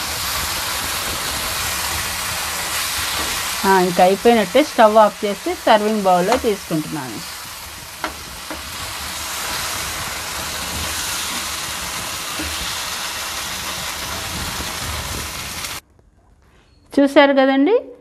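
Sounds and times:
curry sizzling in a pan: 0.0s - 15.8s.

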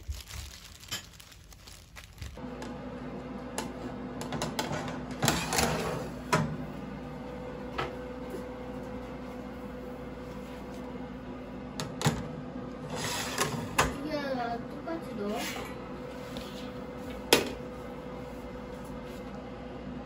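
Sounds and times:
metal trays scraping on oven racks: 4.6s - 6.2s, 12.8s - 13.9s, 15.2s - 15.8s.

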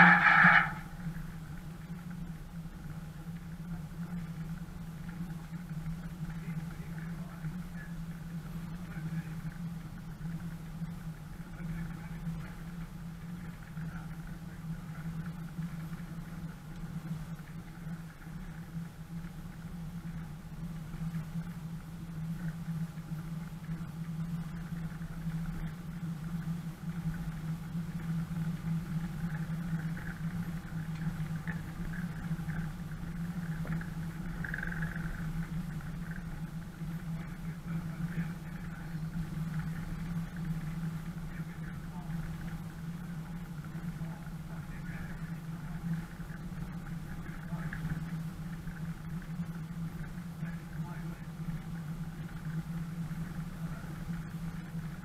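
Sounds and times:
faint creaks: 0.0s - 2.2s, 23.7s - 49.6s
engine running at low revs: 0.0s - 55.0s.

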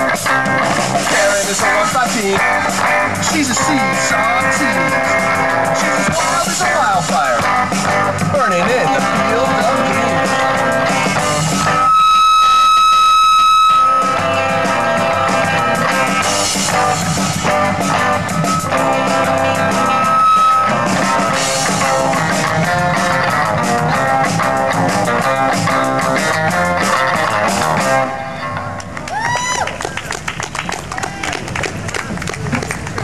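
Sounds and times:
rock band playing: 0.0s - 28.9s
high held guitar note: 7.4s - 28.8s.

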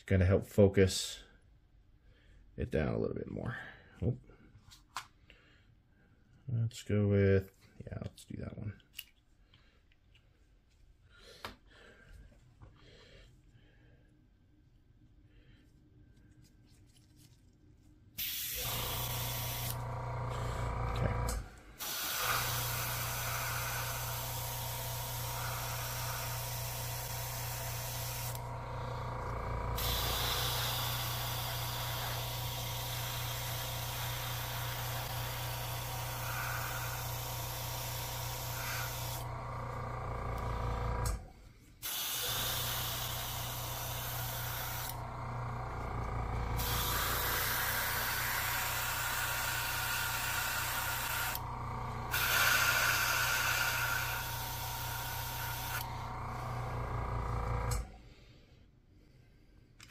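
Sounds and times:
airbrush spraying hiss: 18.2s - 19.8s, 21.8s - 28.4s, 29.8s - 39.3s, 41.8s - 45.0s, 46.6s - 51.4s, 52.1s - 55.8s.

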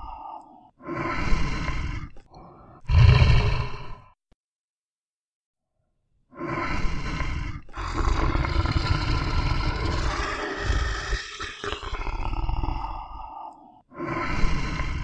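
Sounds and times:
bear growling: 2.8s - 4.1s, 6.9s - 13.4s.

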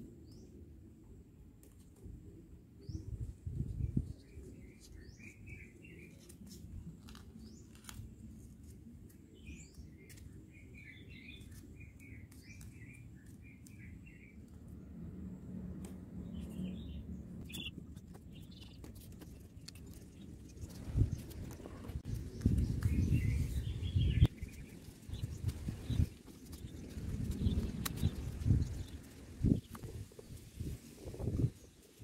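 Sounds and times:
small birds chirping: 2.8s - 14.9s, 16.2s - 32.0s
paper crinkling: 6.1s - 10.4s.

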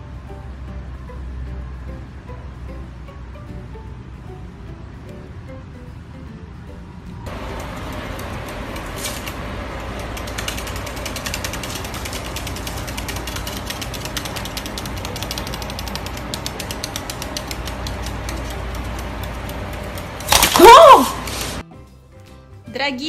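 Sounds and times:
bird claws clicking on wood: 10.0s - 20.6s.

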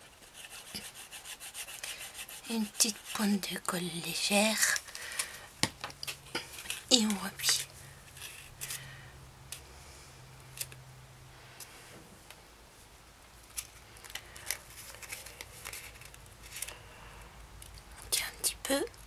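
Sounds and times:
paper crinkling: 13.4s - 16.9s.

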